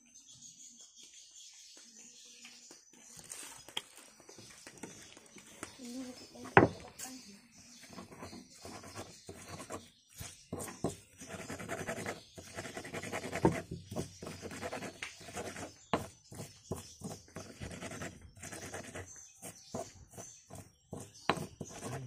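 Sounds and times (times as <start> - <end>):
stone pestle grinding in mortar: 8.0 - 22.0.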